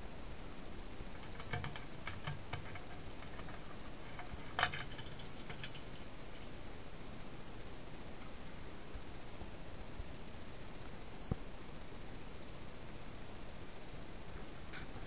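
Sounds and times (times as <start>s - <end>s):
background hiss: 0.0s - 15.0s
light clicks and taps: 1.2s - 6.0s.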